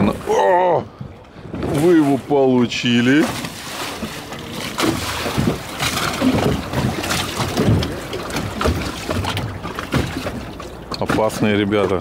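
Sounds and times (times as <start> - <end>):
motorboat engines running: 0.0 - 12.0
water sloshing: 0.0 - 12.0.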